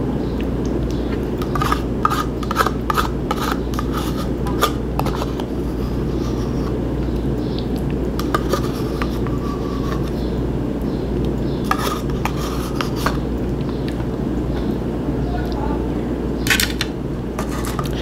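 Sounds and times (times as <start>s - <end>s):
steady low hum: 0.0s - 18.0s
spoon scraping yogurt cup: 1.4s - 6.8s, 8.2s - 10.3s, 11.5s - 13.3s, 17.4s - 18.0s.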